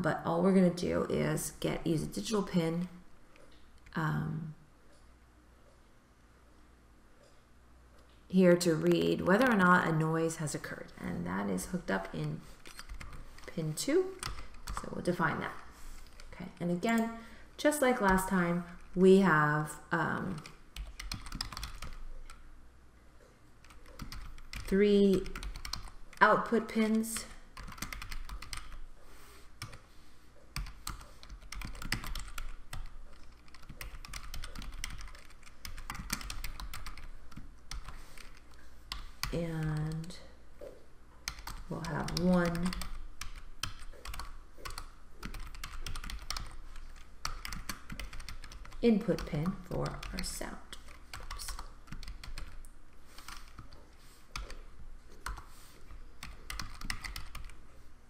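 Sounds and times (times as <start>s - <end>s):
typing on computer keyboard: 11.9s - 13.5s, 14.2s - 14.9s, 20.2s - 22.4s, 23.6s - 28.8s, 30.6s - 40.1s, 41.2s - 54.6s, 55.2s - 55.5s, 56.2s - 57.6s.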